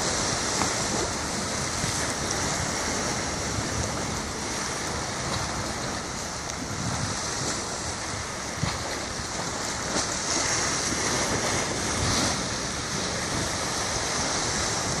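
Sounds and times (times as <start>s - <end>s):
sea waves washing: 0.0s - 15.0s
wind gusting on microphone: 0.0s - 15.0s.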